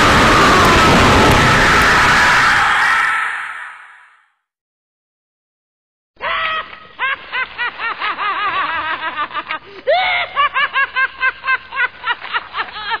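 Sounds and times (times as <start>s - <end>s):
high-pitched cackling laugh: 6.2s - 13.0s.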